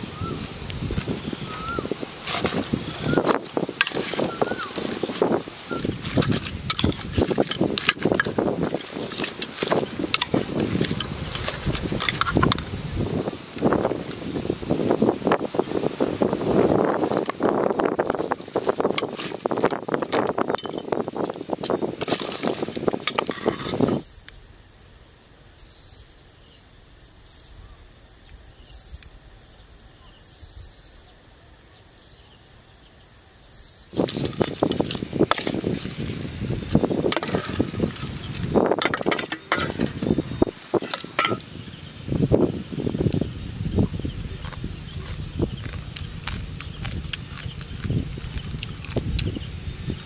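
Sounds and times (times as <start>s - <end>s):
insects calling in high pulses: 0.0s - 50.0s
metal spoon scraping pot: 3.8s - 5.2s, 5.8s - 12.6s, 22.0s - 24.0s, 34.0s - 36.2s, 37.1s - 41.4s.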